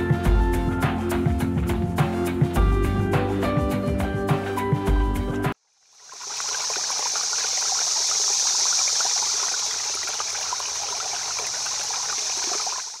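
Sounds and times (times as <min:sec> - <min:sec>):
crackling fizzing hiss: 0:05.8 - 0:13.0.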